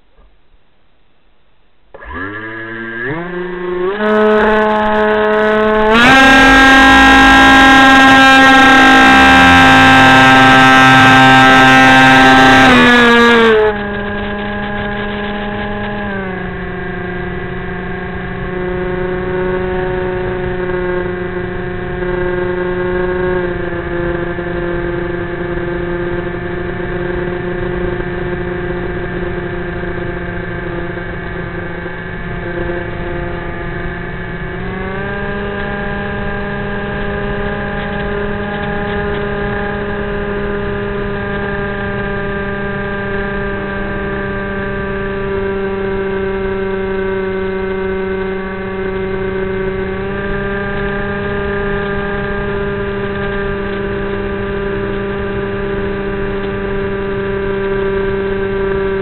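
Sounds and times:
electric motor propeller hum: 0:02.0 - 0:44.7.

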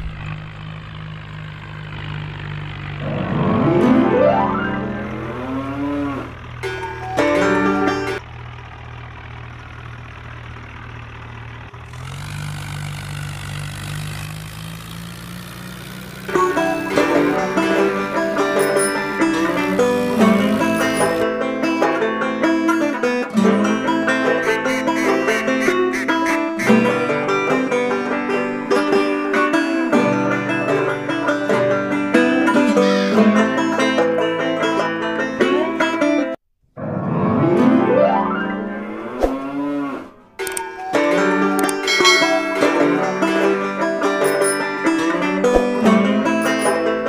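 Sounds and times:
tractor engine idling: 0:00.0 - 0:36.0, 0:40.2 - 0:47.0
banjo and guitar bluegrass tune: 0:03.0 - 0:08.2, 0:16.3 - 0:36.4, 0:40.4 - 0:47.0.

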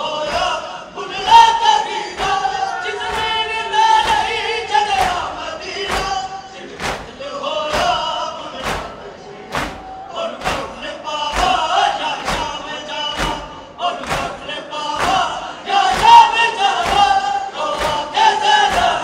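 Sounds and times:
crowd chanting in unison: 0:00.0 - 0:19.0
chest beating slaps: 0:04.0 - 0:19.0.

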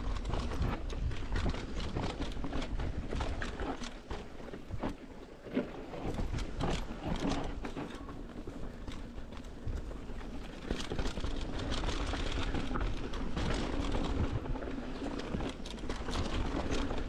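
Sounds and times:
bike rattling and clicking: 0:00.0 - 0:17.0
bike tyres rolling over dirt: 0:00.0 - 0:17.0
wind noise on camera: 0:00.0 - 0:17.0.

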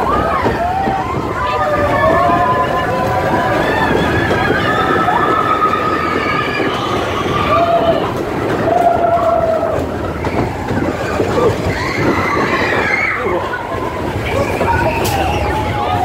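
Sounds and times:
roller coaster wheels rumbling: 0:00.0 - 0:16.0.

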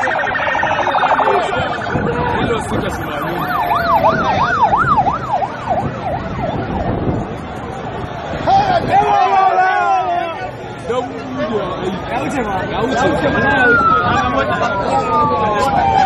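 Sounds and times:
electronic vehicle siren: 0:00.0 - 0:07.3, 0:12.8 - 0:16.0.

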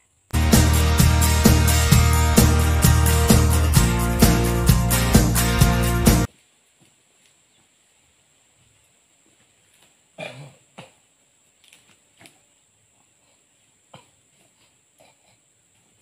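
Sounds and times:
acoustic guitar music: 0:00.3 - 0:06.3.

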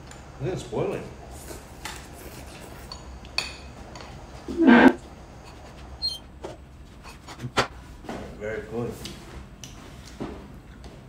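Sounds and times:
spoons scraping ceramic bowls: 0:04.5 - 0:06.2.

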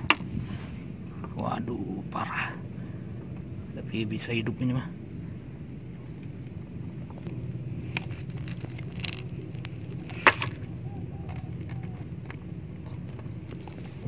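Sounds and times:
steady low hum: 0:00.0 - 0:14.0
lure rattling: 0:07.9 - 0:13.8.

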